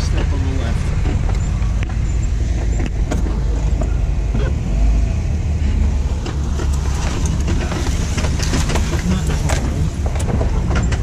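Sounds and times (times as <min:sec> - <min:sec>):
car engine low rumble: 0:00.0 - 0:11.0
knocks and clicks: 0:01.0 - 0:04.0, 0:06.1 - 0:11.0.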